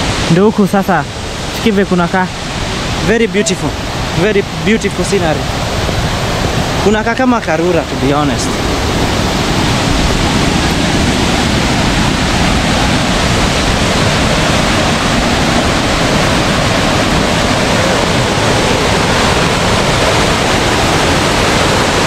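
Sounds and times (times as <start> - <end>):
waterfall rushing: 0.0 - 22.0.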